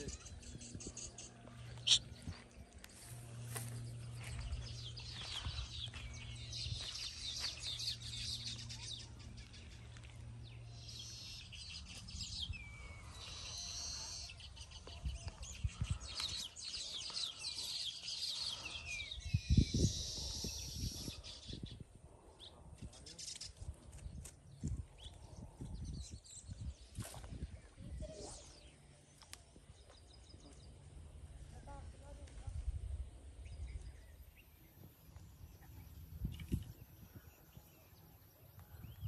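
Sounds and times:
low steady hum: 0:00.0 - 0:15.9
small birds chirping: 0:00.0 - 0:39.0.

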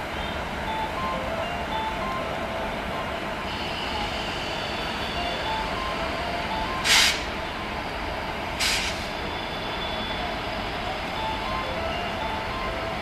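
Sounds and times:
electric locomotive rumble: 0:00.0 - 0:13.0
air hiss bursts: 0:06.8 - 0:07.3, 0:08.6 - 0:09.1.

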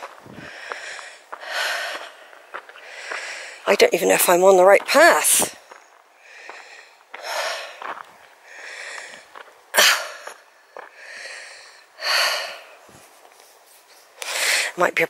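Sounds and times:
person breathing hard: 0:00.2 - 0:03.7, 0:05.6 - 0:12.9, 0:14.2 - 0:14.8.

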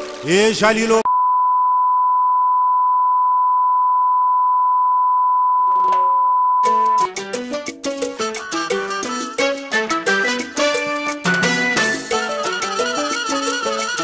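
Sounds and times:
music with sharp percussion: 0:10.6 - 0:14.0.

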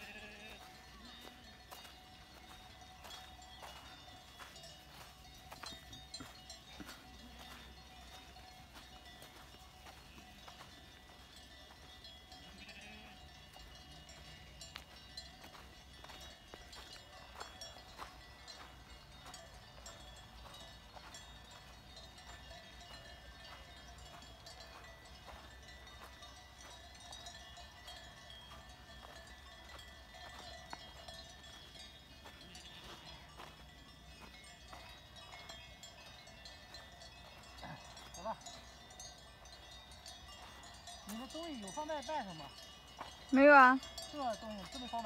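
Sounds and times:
sheep bleating: 0:00.0 - 0:01.2, 0:12.4 - 0:13.2
sheep bells clinking: 0:00.0 - 0:45.0.

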